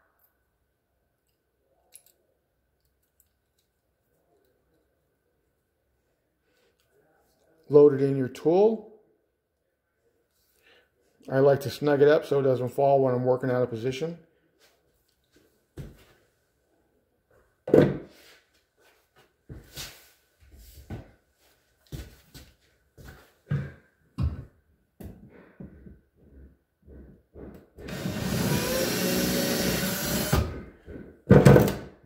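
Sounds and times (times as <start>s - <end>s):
power drill drilling: 27.8s - 30.6s.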